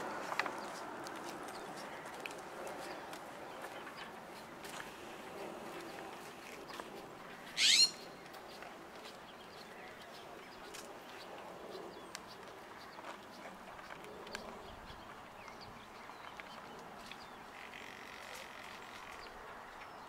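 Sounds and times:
bird chirp: 5.6s - 20.0s.

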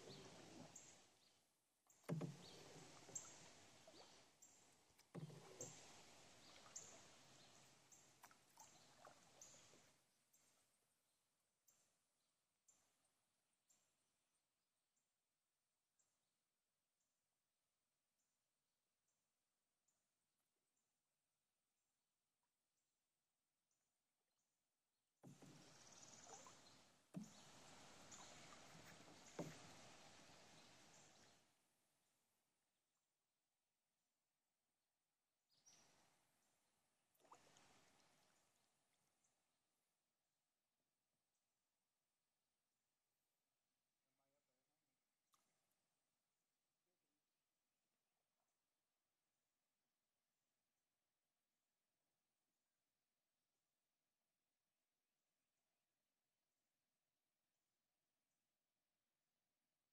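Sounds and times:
paddle strokes in water: 0.0s - 10.4s, 25.2s - 31.6s, 37.2s - 39.0s
water dripping: 1.9s - 9.9s, 25.3s - 31.3s.

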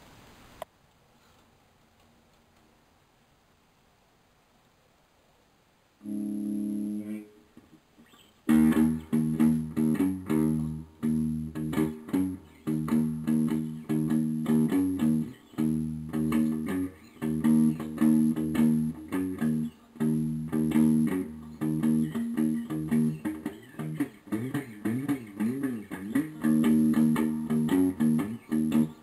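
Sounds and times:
plucked guitar with bass line: 6.0s - 7.3s, 8.5s - 29.0s.

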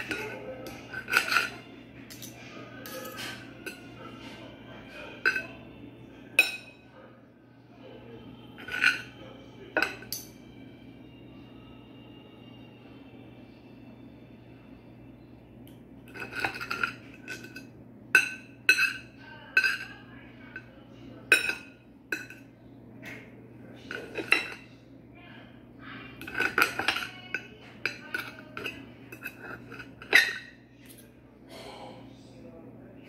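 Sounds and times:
knife and fork clinking on a plate: 0.0s - 4.3s, 4.9s - 5.6s, 6.3s - 6.8s, 8.6s - 10.4s, 16.1s - 24.7s, 26.2s - 31.1s.

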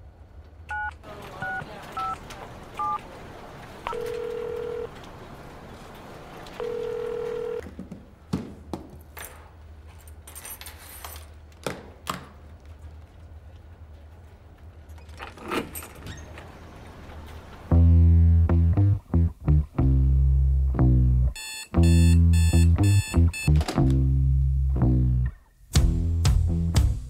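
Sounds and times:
phone ringing tone beeps: 0.7s - 2.2s, 3.9s - 4.9s, 6.6s - 7.6s, 21.4s - 23.6s
phone keypad tone: 6.6s - 7.6s, 21.4s - 23.6s.

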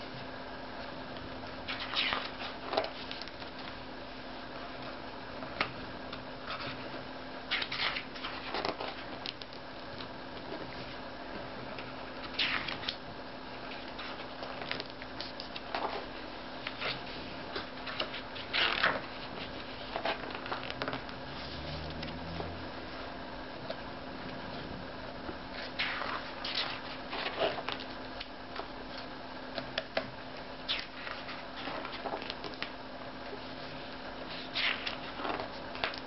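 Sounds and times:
steady low hum: 0.0s - 36.0s
book pages turning: 7.5s - 11.0s, 13.7s - 22.6s, 30.7s - 32.8s, 33.9s - 36.0s.

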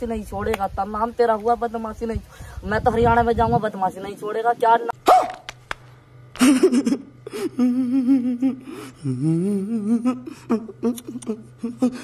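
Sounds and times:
steady low drone: 5.9s - 12.0s
man's wordless wavering vocals: 7.5s - 12.0s.

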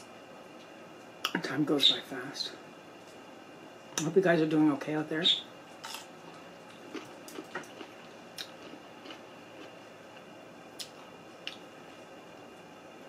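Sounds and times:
chewing food: 5.8s - 11.6s.

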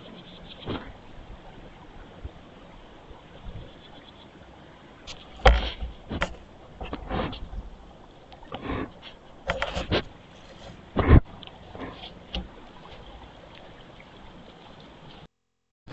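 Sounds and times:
bumps and scrapes on camera: 0.0s - 1.0s, 5.1s - 7.7s, 8.4s - 13.1s.

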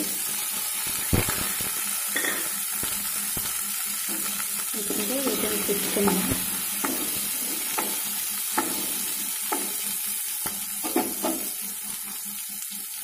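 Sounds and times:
onions sizzling in hot oil: 0.0s - 13.0s
spatula scraping a pan: 5.3s - 11.8s.

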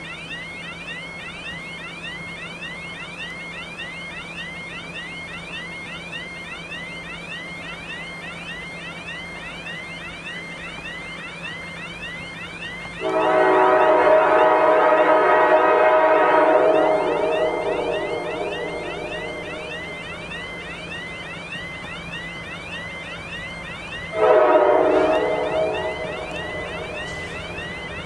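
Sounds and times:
electronic warning chirps: 0.0s - 28.0s
locomotive horn: 13.0s - 20.6s, 24.2s - 28.0s.

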